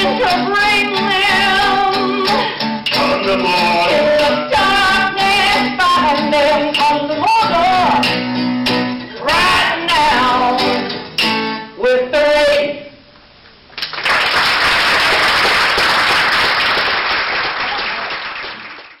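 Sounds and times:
person singing: 0.0 - 8.2, 9.1 - 10.9
acoustic guitar: 0.0 - 13.6
audience applause: 13.8 - 19.0.

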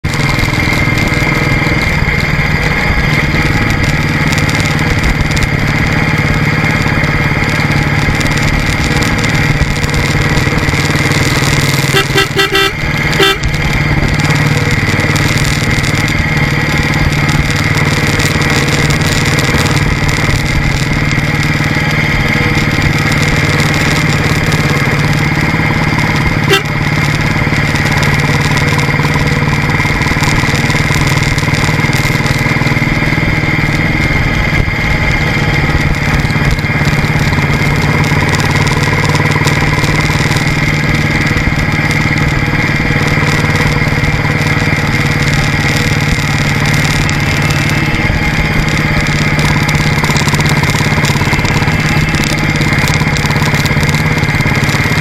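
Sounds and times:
motorcycle engine running: 0.0 - 55.0
road and wind noise: 0.0 - 55.0
vehicle horn short beeps: 11.9 - 13.6, 26.4 - 26.8.

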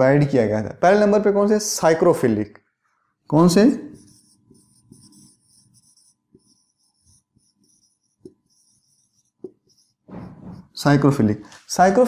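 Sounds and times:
soft marker taps: 3.9 - 10.6
marker squeaking on whiteboard: 3.9 - 10.8.

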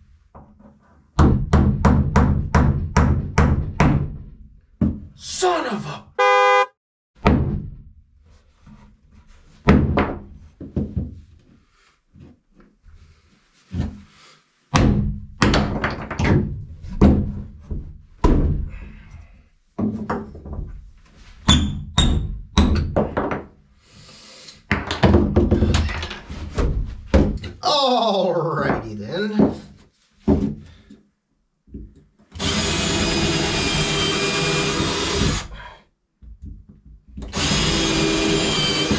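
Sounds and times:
hammer blows on wood: 6.2 - 6.7.

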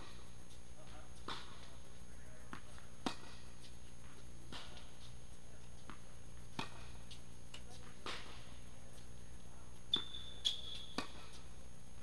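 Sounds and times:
steady low hum: 0.0 - 12.0
tennis ball strikes and bounces: 2.4 - 3.7, 4.5 - 5.1, 5.8 - 8.5, 9.9 - 11.5.

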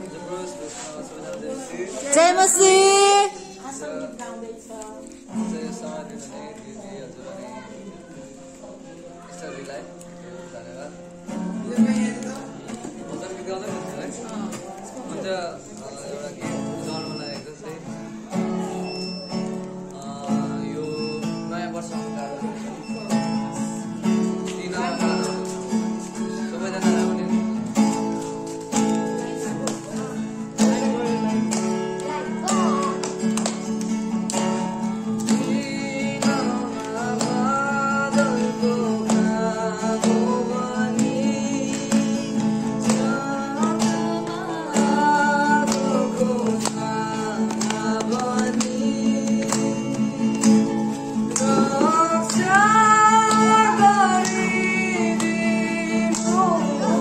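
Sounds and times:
acoustic guitar strumming chords: 0.0 - 4.2, 4.8 - 57.0
person singing: 35.0 - 57.0.

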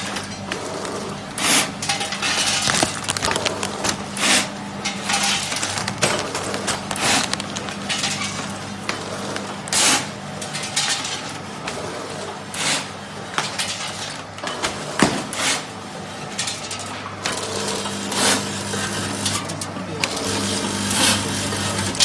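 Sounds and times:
packing machine motor hum: 0.0 - 10.4, 17.2 - 22.0
loud bag rustling: 2.2 - 8.6
machine clicking and clattering: 4.8 - 8.5.

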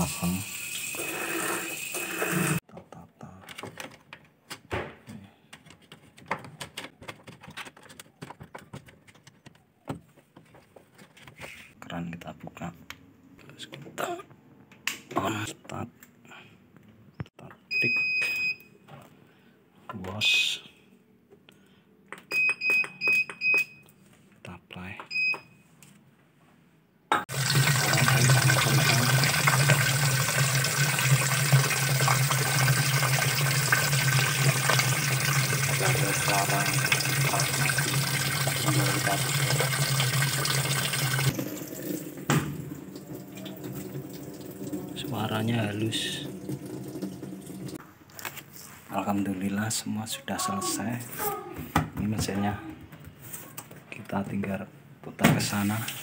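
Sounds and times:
water rushing into washing machine: 0.0 - 2.6, 27.3 - 47.8
control panel beep: 22.3 - 23.8.

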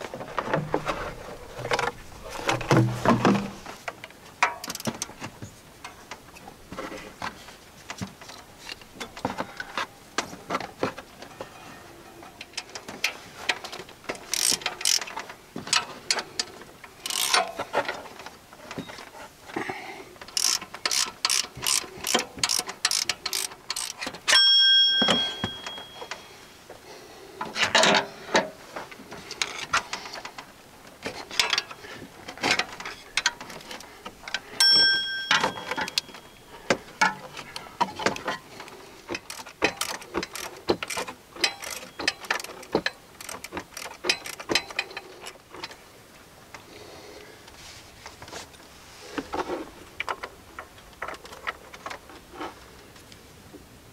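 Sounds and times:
ratchet wrench clicking: 14.2 - 15.1, 17.0 - 17.5, 20.3 - 24.4, 39.2 - 45.0
short metallic ringing: 24.3 - 26.3, 34.6 - 36.5.

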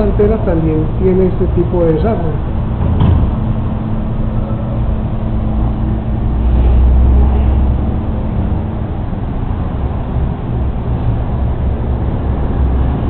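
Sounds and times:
low rumble with a hum: 0.0 - 13.0.

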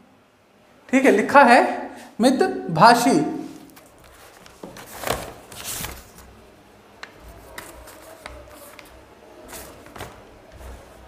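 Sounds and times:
rustling: 3.6 - 6.4.

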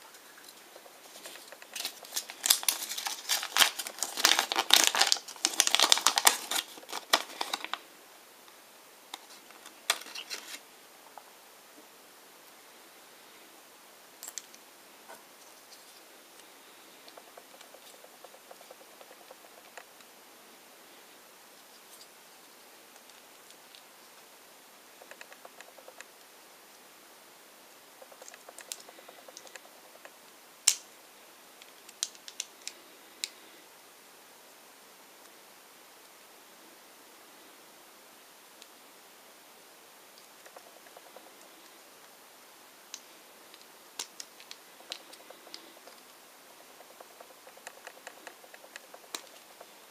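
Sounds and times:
plastic wrapper crinkling: 1.0 - 7.8, 9.2 - 10.6.

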